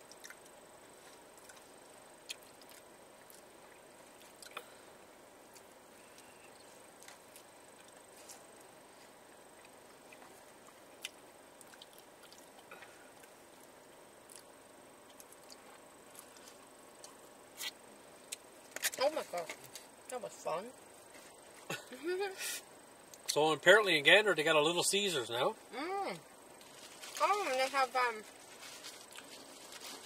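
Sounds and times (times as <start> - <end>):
chewing: 0.0 - 4.7, 5.5 - 8.7, 9.3 - 18.9, 28.5 - 30.0
low steady hiss: 0.0 - 30.0.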